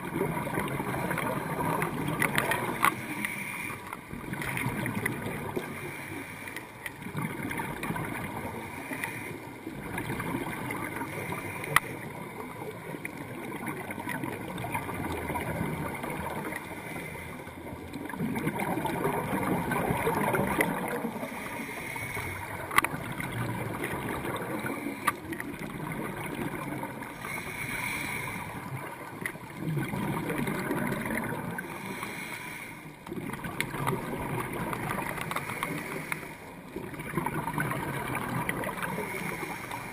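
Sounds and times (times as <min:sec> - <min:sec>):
bubbles gurgling underwater: 0:00.0 - 0:06.0, 0:06.9 - 0:08.8, 0:09.4 - 0:16.8, 0:17.6 - 0:21.5, 0:22.1 - 0:32.0, 0:33.0 - 0:39.7
diver breathing through regulator: 0:02.2 - 0:04.2, 0:05.5 - 0:06.9, 0:08.3 - 0:09.8, 0:10.9 - 0:12.2, 0:16.4 - 0:17.8, 0:20.1 - 0:22.9, 0:24.2 - 0:25.4, 0:26.8 - 0:28.9, 0:30.6 - 0:33.0, 0:34.8 - 0:36.7, 0:38.7 - 0:39.9.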